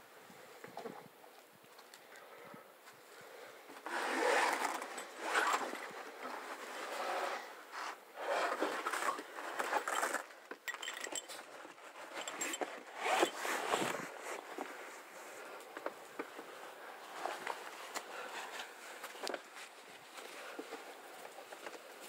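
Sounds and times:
shoes scraping against rock: 12.1s - 15.0s.

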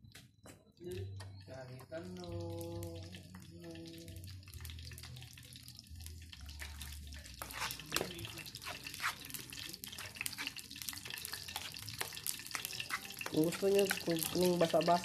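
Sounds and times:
oil sizzling in frying pan: 1.8s - 15.0s.

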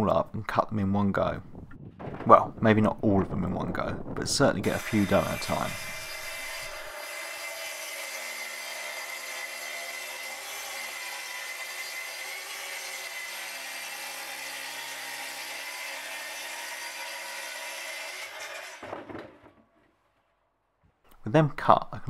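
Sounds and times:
track saw cutting boards: 4.6s - 19.7s.

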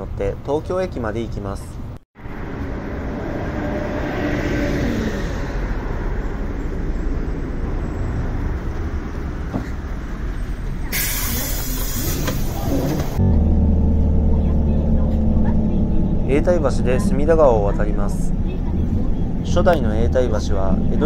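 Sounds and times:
bus engine and road rumble: 0.0s - 21.0s
air brakes hissing: 10.9s - 13.2s.

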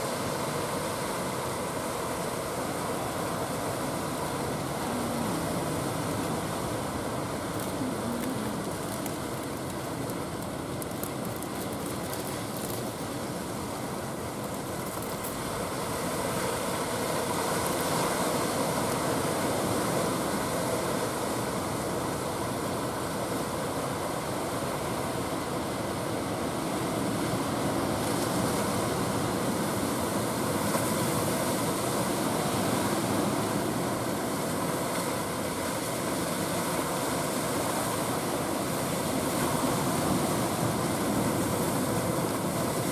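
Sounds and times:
waves breaking: 0.0s - 42.9s
wind: 0.0s - 42.9s.

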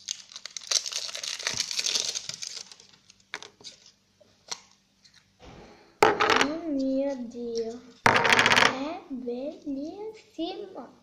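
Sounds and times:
plastic wrapping crinkling: 0.0s - 4.8s.

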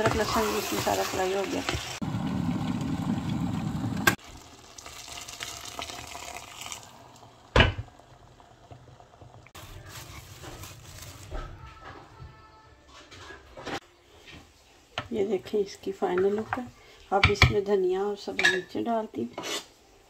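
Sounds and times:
kettle boiling rumble: 0.0s - 10.2s
water pouring hiss: 1.8s - 9.9s.

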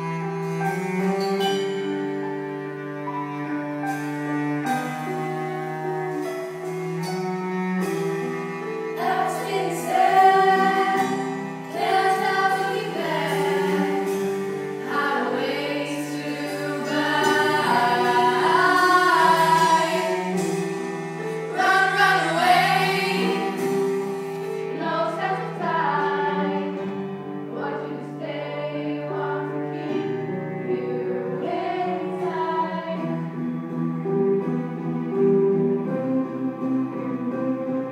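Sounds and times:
small live band playing: 0.0s - 37.9s
ensemble singing together: 8.6s - 34.3s.

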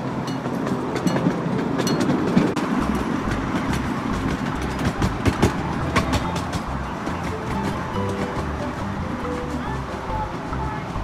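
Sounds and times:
clicks and clacks: 0.0s - 11.0s
wheels rumbling on rails: 0.0s - 11.0s.

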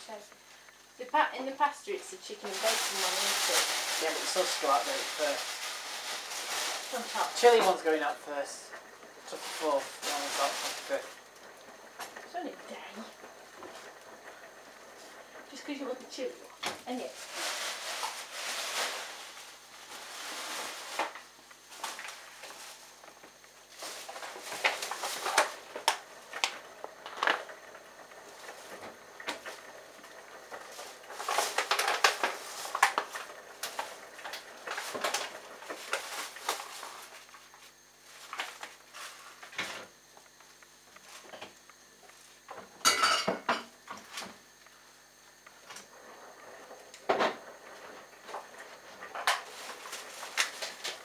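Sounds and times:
faint steady hum: 0.0s - 51.0s
dishes and utensils clattering: 42.8s - 43.7s.

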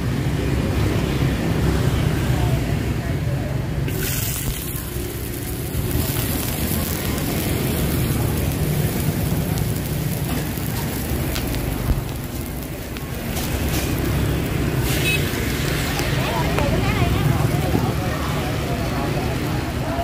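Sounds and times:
batter sizzling in pans: 3.9s - 19.5s.

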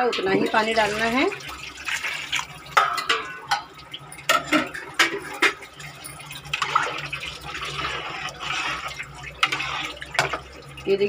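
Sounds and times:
stirring rice and water: 0.0s - 11.0s
ladle clinking against pot: 2.7s - 6.8s.

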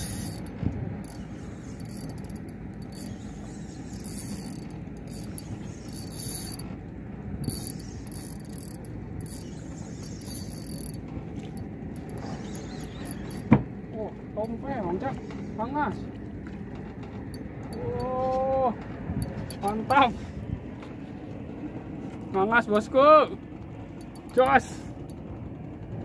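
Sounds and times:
fishing reel buzzing: 0.0s - 6.8s, 7.4s - 13.5s, 24.0s - 24.8s.

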